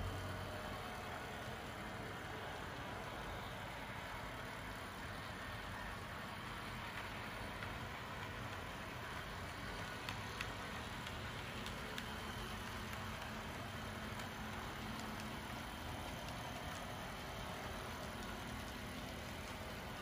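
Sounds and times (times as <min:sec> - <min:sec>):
model train rolling on track: 0:00.0 - 0:20.0
faint clicks: 0:06.8 - 0:19.6.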